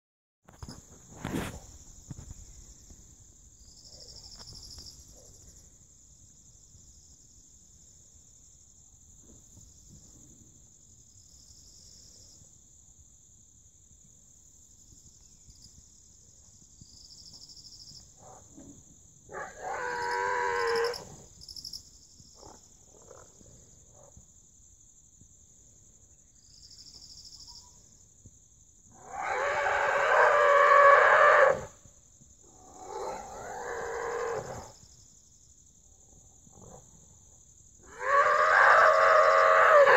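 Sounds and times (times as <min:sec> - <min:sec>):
high insect drone: 0:00.5 - 0:39.9
boar squealing in distress: 0:29.0 - 0:31.7, 0:37.9 - 0:39.9.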